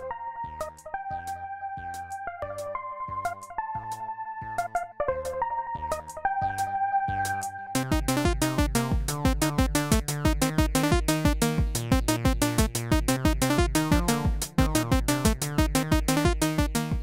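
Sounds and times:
synthesizer notes: 0:02.8 - 0:17.0
drum machine beat: 0:07.8 - 0:17.0.

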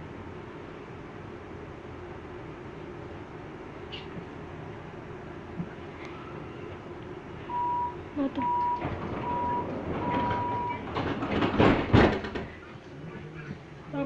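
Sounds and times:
train hum: 0:00.0 - 0:14.0
door warning beeps: 0:07.5 - 0:10.9
sliding doors closing with bang: 0:07.5 - 0:12.8.

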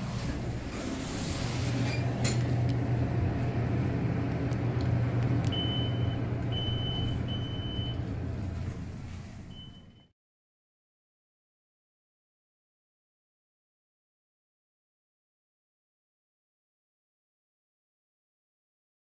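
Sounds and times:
elevator machine hum: 0:00.0 - 0:10.1
high beeps: 0:05.5 - 0:08.0.

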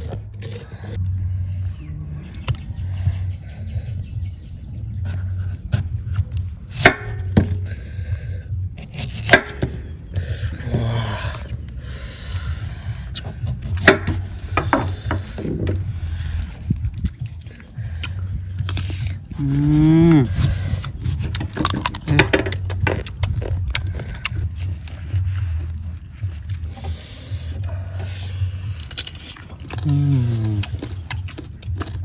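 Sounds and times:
steady low rumble: 0:00.0 - 0:32.0
knocks and scrapes on wood: 0:13.2 - 0:15.8.

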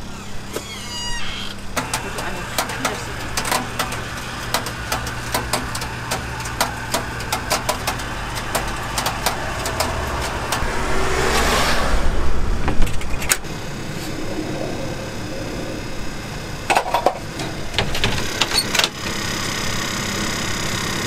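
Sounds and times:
steady low hum: 0:00.0 - 0:21.0
rotisserie spits ticking clicks: 0:01.5 - 0:10.7
vehicle passing: 0:01.8 - 0:17.8.

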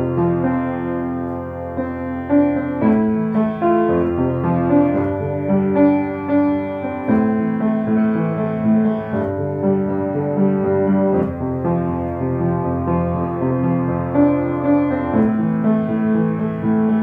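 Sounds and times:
slow solo piano: 0:00.0 - 0:17.0.

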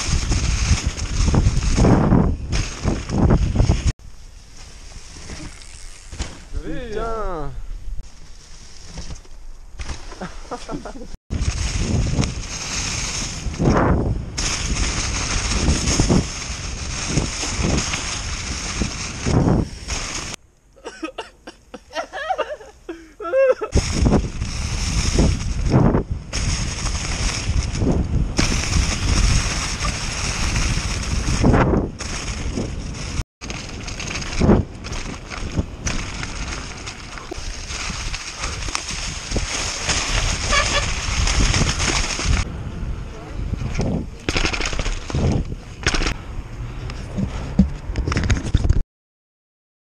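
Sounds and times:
wind buffeting microphone: 0:00.0 - 0:04.0, 0:11.3 - 0:20.4, 0:23.7 - 0:48.8
tyres over leaves and roots: 0:00.0 - 0:20.4, 0:23.5 - 0:47.9
bike knocking and rattling: 0:04.6 - 0:06.7, 0:08.8 - 0:20.4, 0:23.9 - 0:42.5, 0:43.6 - 0:46.2.

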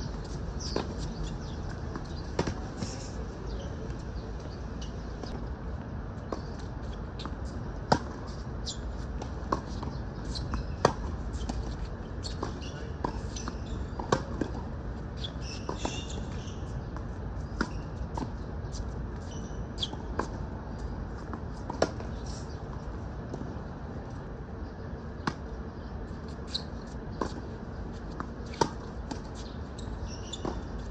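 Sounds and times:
tennis ball bouncing: 0:00.1 - 0:02.8, 0:06.3 - 0:08.4, 0:09.0 - 0:16.2, 0:19.2 - 0:23.5, 0:27.2 - 0:30.9.

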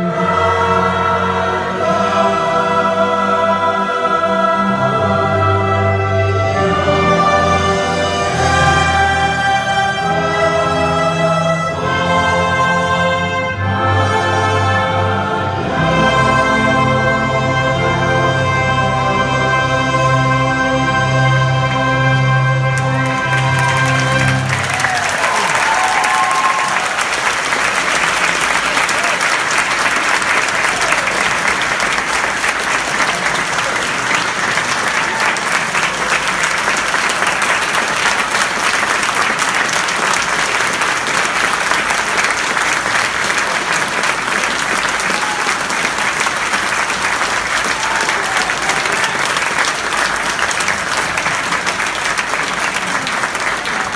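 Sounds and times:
audience applauding: 0:22.1 - 0:53.9.

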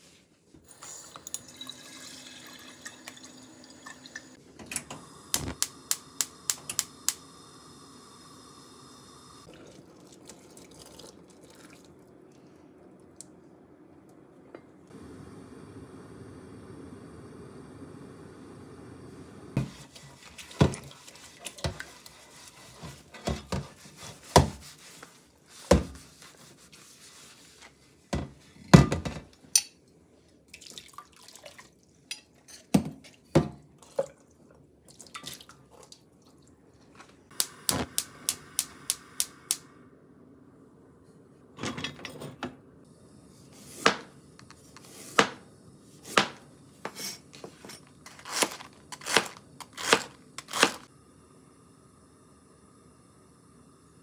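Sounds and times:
sponge scrubbing pan: 0:19.6 - 0:27.6
knife slicing on cutting board: 0:48.1 - 0:50.8.

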